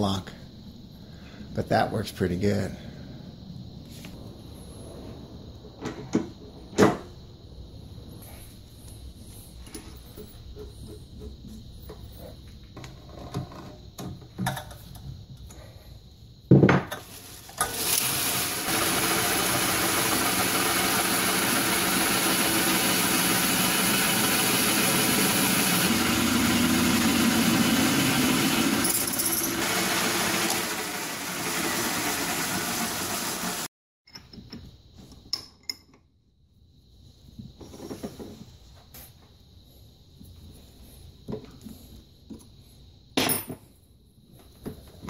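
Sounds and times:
drill boring into metal: 17.6s - 33.7s
metal lathe running: 17.8s - 33.7s.

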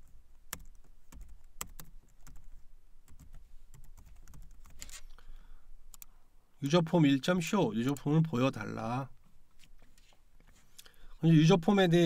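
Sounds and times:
typing on keyboard: 0.0s - 2.5s, 3.1s - 5.0s.

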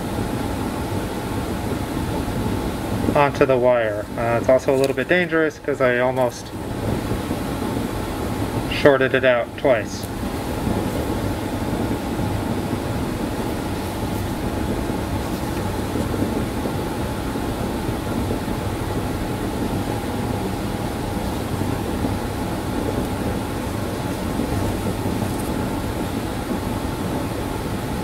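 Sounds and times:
faint hum: 0.0s - 28.0s
steady rushing noise: 0.0s - 28.0s.

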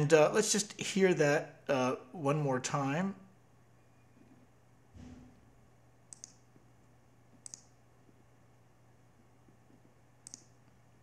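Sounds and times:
faint low hum: 0.0s - 11.0s
computer mouse clicking: 6.1s - 6.4s, 7.3s - 7.8s, 9.5s - 10.8s.

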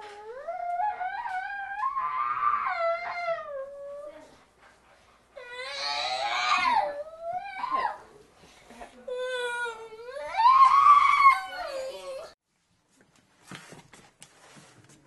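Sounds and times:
boy screaming: 0.8s - 3.5s, 5.5s - 8.0s, 9.3s - 12.3s
boy wailing: 5.4s - 8.2s, 9.1s - 12.4s.

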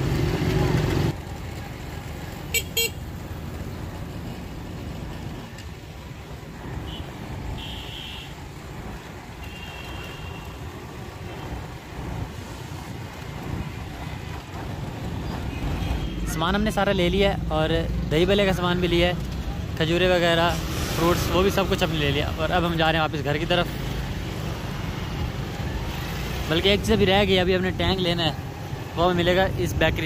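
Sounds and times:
motorcycles and rickshaws passing: 0.0s - 30.0s
high horn toots: 6.8s - 8.4s.

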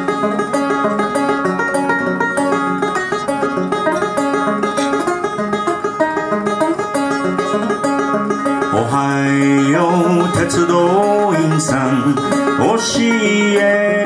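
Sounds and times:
banjo playing: 0.0s - 14.0s.

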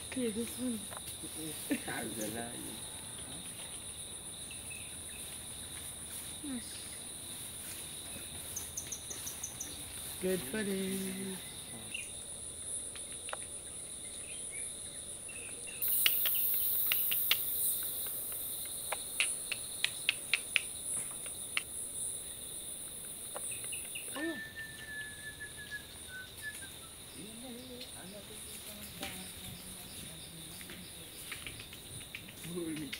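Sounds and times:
crickets and insects chirring: 0.0s - 32.9s
high hiss: 15.8s - 20.7s
sharp clicks: 15.8s - 21.7s.

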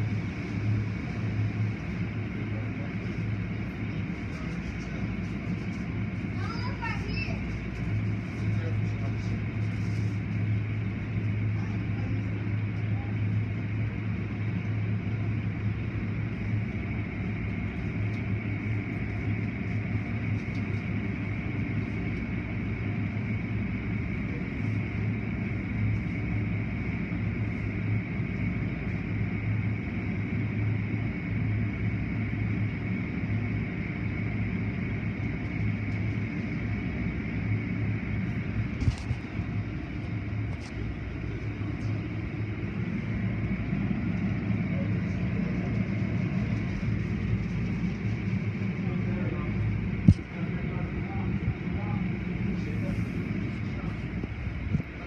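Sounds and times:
low machinery hum: 0.0s - 55.0s.

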